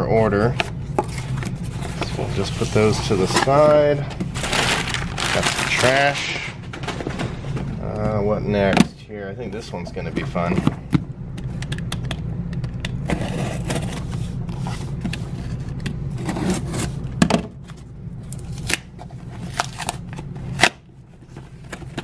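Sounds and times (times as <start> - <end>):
tape and cardboard crackling: 0.5 - 6.2, 17.6 - 22.0
knife slitting packing tape: 18.3 - 20.0.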